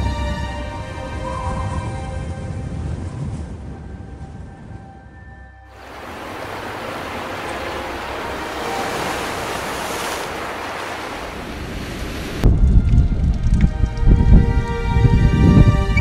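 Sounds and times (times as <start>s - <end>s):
wind: 0.0s - 16.0s
waves washing onto shore: 5.7s - 13.8s.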